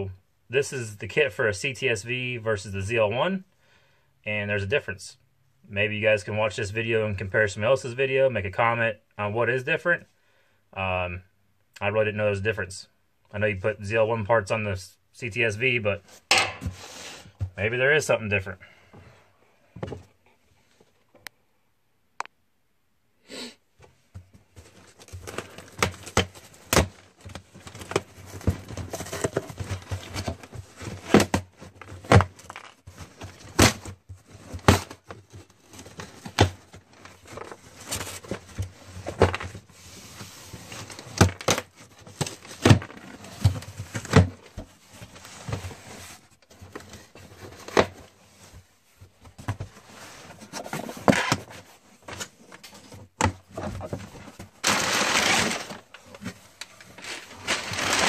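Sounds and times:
packing paper crinkling: 54.6s - 56.2s, 56.8s - 58.0s
cardboard and tape ripping: 54.6s - 56.3s, 57.0s - 58.0s.

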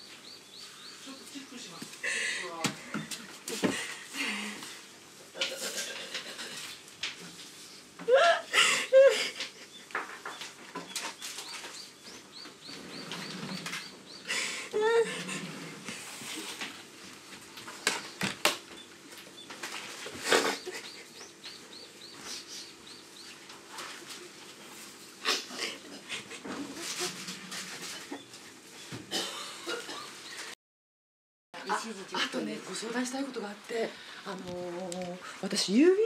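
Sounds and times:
woman wailing: 8.0s - 9.4s, 14.7s - 15.4s
woman sobbing: 8.0s - 9.7s, 14.3s - 15.5s.

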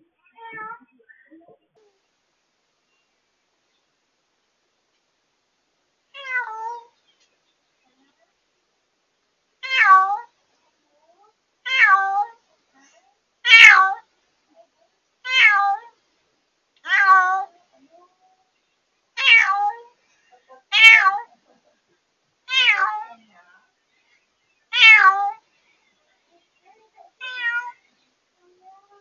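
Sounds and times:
cat meowing loudly: 6.2s - 6.9s, 9.6s - 10.3s, 11.6s - 12.4s, 13.4s - 14.0s, 15.2s - 16.0s, 16.8s - 17.5s, 19.2s - 19.9s, 20.7s - 21.3s, 22.5s - 23.1s, 24.7s - 25.4s, 27.2s - 27.8s.

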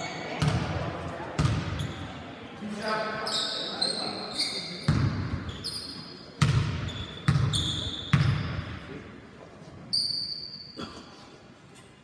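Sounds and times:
short high squeaks: 9.9s - 10.8s.

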